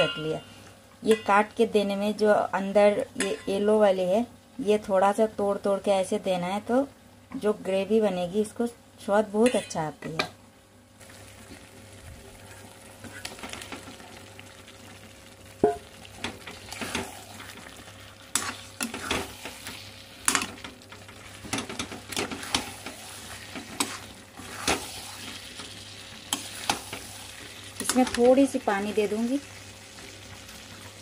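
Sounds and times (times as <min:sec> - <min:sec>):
gravy sizzling: 0:10.8 - 0:31.0
metal spatula scraping pan: 0:22.2 - 0:25.4.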